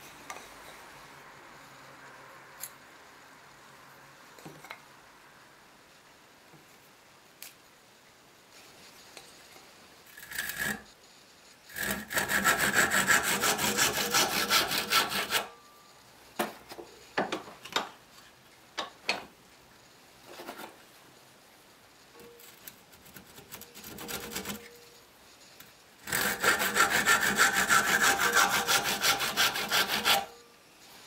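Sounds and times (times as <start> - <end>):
handsaw cutting wood: 10.2 - 10.9, 11.7 - 15.5, 23.8 - 24.6, 26.0 - 30.4.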